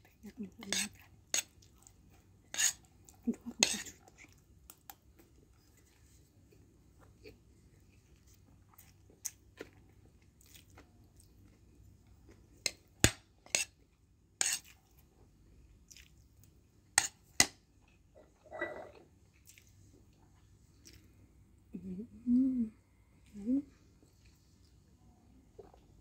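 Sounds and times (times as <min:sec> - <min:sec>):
person chewing food: 0:00.7 - 0:12.9, 0:15.7 - 0:21.2, 0:25.5 - 0:26.0.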